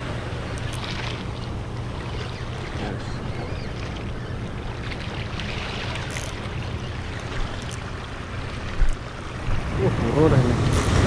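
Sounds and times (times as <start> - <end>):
sea waves washing over rocks: 7.3 - 11.0.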